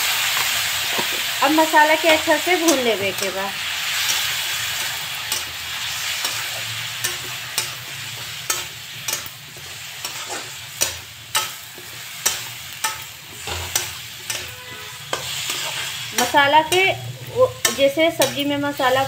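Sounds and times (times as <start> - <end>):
vegetables sizzling in oil: 0.0 - 19.0.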